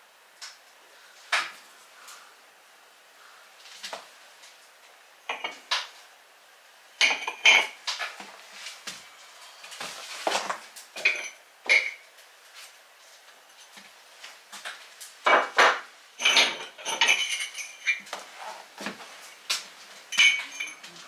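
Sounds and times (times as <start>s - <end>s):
tiles clinking and clacking: 5.3s - 6.0s, 7.0s - 8.3s, 9.7s - 12.1s, 13.5s - 21.0s.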